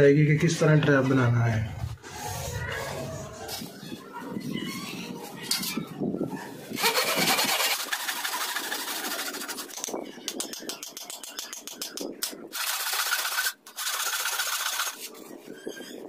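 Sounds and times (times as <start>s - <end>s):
hand saw cutting bamboo: 6.8s - 9.6s, 12.6s - 15.0s.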